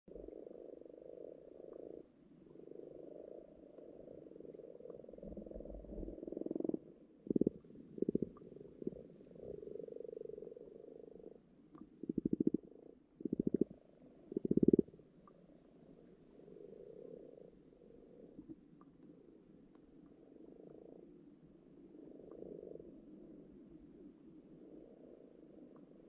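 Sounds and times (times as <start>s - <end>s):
short pulsed frog croaks: 0.1s - 15.4s, 16.5s - 18.9s, 20.0s - 21.1s, 21.9s - 22.9s
frogs purring underwater: 0.1s - 26.0s.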